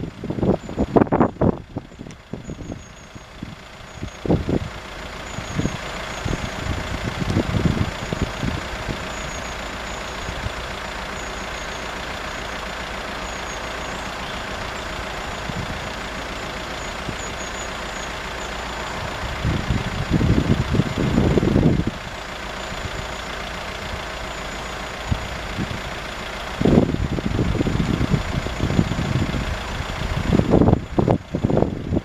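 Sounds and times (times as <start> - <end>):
wind buffeting microphone: 0.0 - 9.4, 15.2 - 17.3, 18.8 - 22.2, 25.1 - 32.0.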